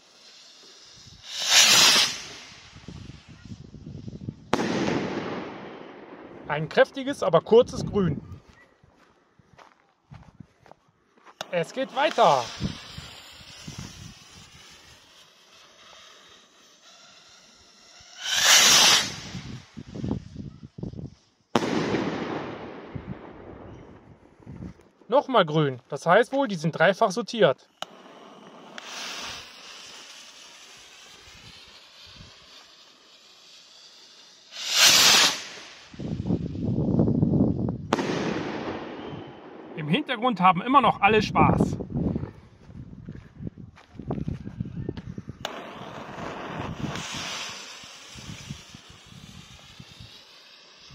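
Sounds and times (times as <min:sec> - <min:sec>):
fuse hissing: 0:00.0 - 0:03.2, 0:11.4 - 0:20.2, 0:27.6 - 0:36.4, 0:46.3 - 0:50.9
rocket launch whoosh: 0:00.0 - 0:08.0, 0:11.4 - 0:20.9, 0:21.5 - 0:24.0, 0:27.8 - 0:40.0, 0:45.3 - 0:50.9
firework shell bang: 0:04.5 - 0:05.6.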